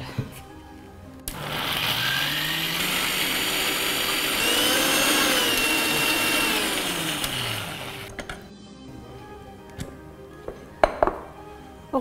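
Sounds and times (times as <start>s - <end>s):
mixer grinder running: 1.3s - 8.2s.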